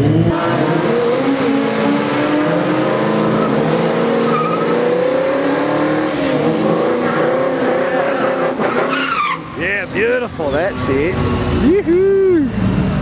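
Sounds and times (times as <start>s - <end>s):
engine revving high: 0.0s - 10.1s
tyres squealing: 0.4s - 11.9s.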